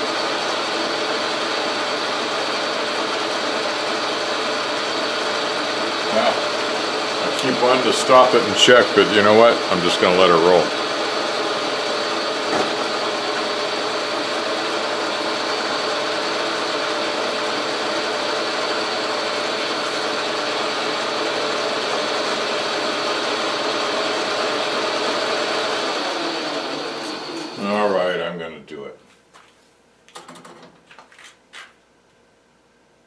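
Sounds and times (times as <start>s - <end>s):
metal lathe whirring: 0.0s - 28.0s
steady whining tones: 0.0s - 28.3s.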